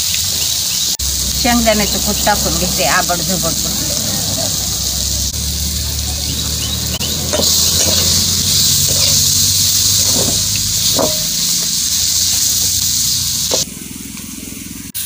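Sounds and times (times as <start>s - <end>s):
food sizzling in oil: 0.0s - 13.7s
metal spatula scraping pan: 7.0s - 13.6s.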